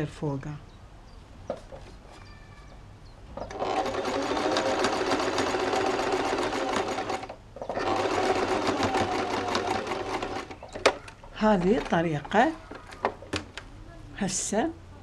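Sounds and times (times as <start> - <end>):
electric sewing machine stitching: 3.4 - 11.8.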